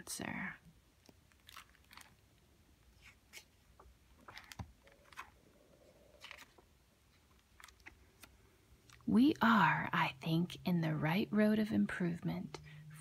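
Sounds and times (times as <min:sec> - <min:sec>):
book pages turning: 0:01.0 - 0:09.0
paper rustling: 0:02.9 - 0:05.4, 0:06.1 - 0:08.4.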